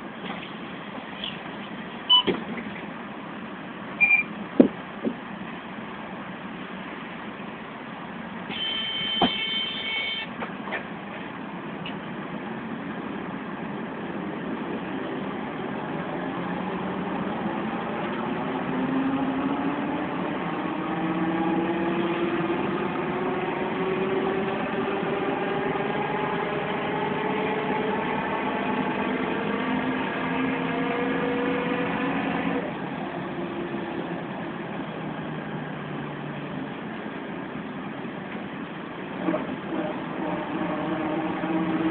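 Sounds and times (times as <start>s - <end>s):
short beep: 2.1s - 2.3s, 4.0s - 4.3s, 8.5s - 10.3s
bus gearbox howl: 21.1s - 34.2s, 39.2s - 41.9s.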